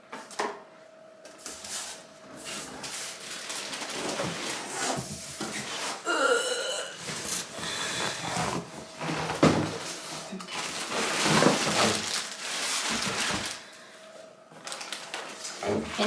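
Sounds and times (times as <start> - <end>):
plastic bag crinkling: 3.1 - 4.7, 10.5 - 13.8, 14.6 - 16.0.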